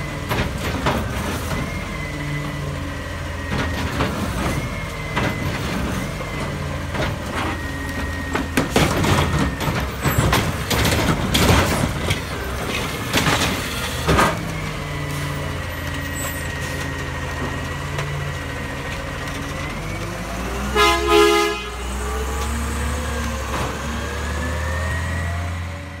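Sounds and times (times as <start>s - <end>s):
garbage truck diesel engine: 0.0s - 26.0s
truck horn toot: 20.6s - 22.0s.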